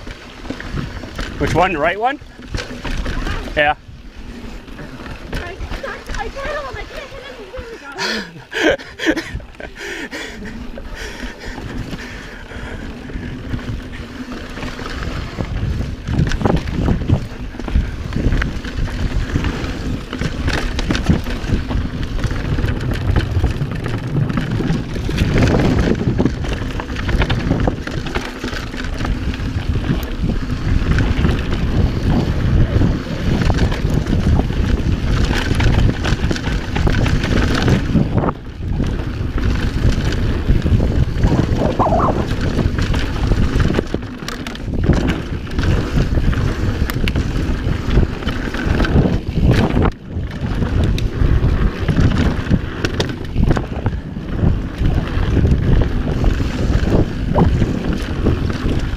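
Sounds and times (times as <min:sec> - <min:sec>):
tyres rumbling on dirt: 0:00.0 - 0:58.9
wind rushing over microphone: 0:00.0 - 0:58.9
bike knocks and rattles: 0:14.6 - 0:58.9.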